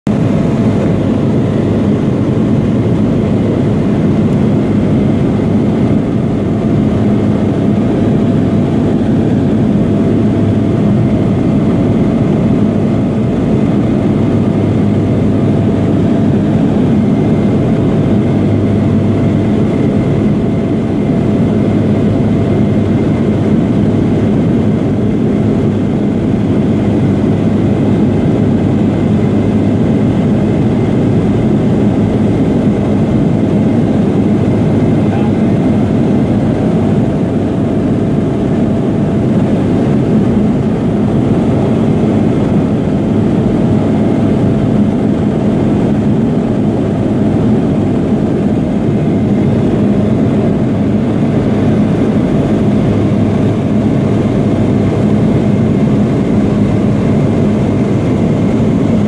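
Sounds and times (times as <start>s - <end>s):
faint steady whine: 0.1s - 59.0s
light aircraft engine drone: 0.1s - 59.0s.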